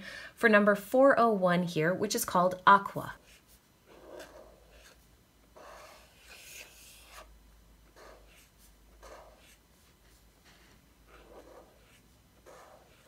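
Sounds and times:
brush marker rubbing on paper: 0:03.2 - 0:05.0, 0:05.6 - 0:07.3, 0:07.9 - 0:13.0.

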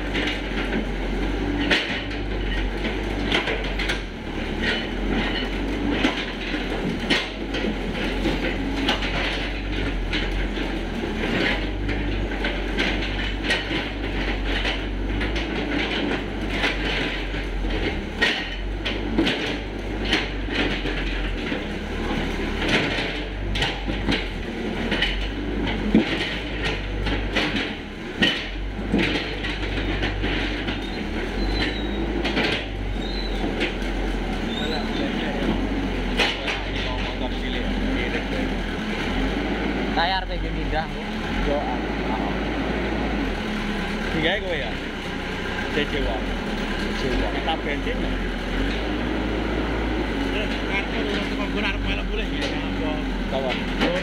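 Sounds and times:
metallic clanks of excavator bucket: 0:00.0 - 0:39.2
diesel engine running: 0:00.0 - 0:54.0.

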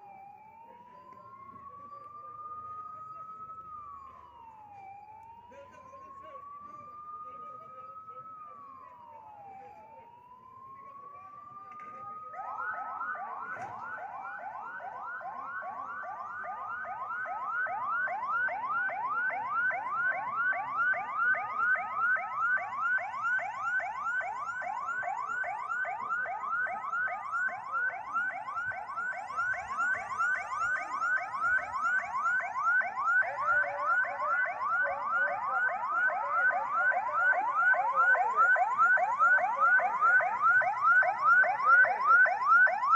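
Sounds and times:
fast yelping siren: 0:00.0 - 0:42.9
wailing siren: 0:00.0 - 0:42.9.

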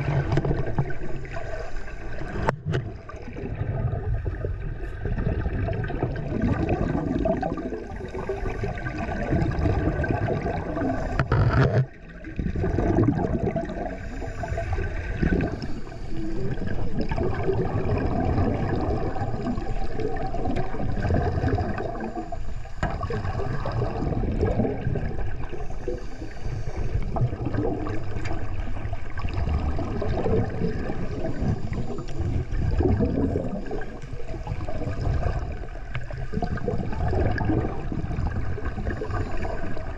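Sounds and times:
muffled underwater sloshing: 0:00.0 - 0:39.9.

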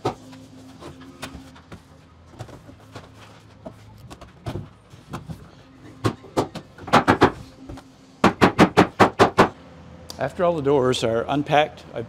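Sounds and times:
garage door panels knocking: 0:06.4 - 0:07.4, 0:08.2 - 0:09.5.

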